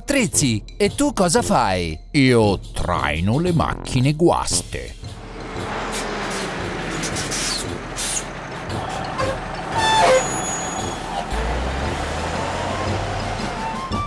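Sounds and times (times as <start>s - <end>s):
heavy truck engine running: 5.0s - 14.0s.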